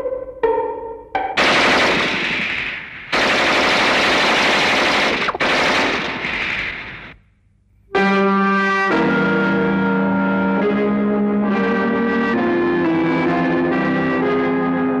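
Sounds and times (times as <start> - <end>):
machine-gun fire: 1.4 - 7.2.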